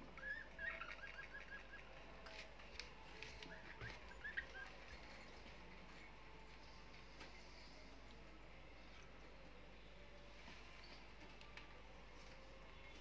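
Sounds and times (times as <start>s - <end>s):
budgerigar chirping: 0.2s - 1.9s.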